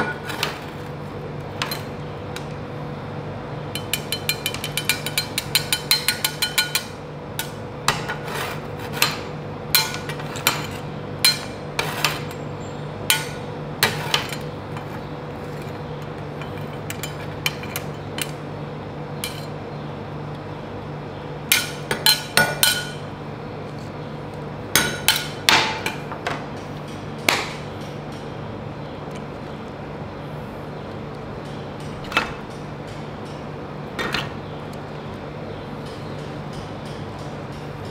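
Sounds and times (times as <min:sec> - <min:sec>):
spatulas tapping on metal plate: 0:03.8 - 0:08.2.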